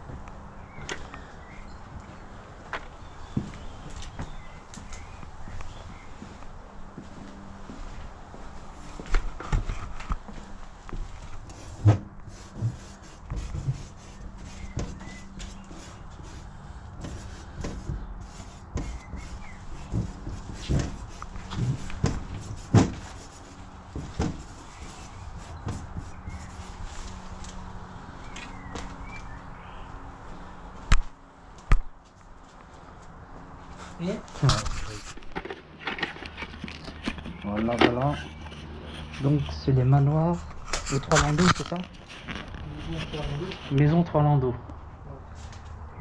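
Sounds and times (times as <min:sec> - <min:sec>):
light knocks and scuffs: 0:17.0 - 0:27.6.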